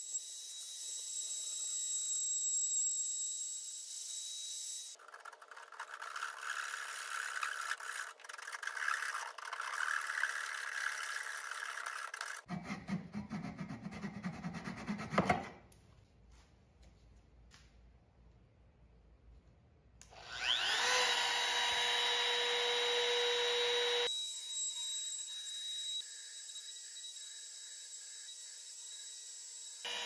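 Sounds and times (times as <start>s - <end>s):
hand saw cutting wood: 5.0s - 15.6s.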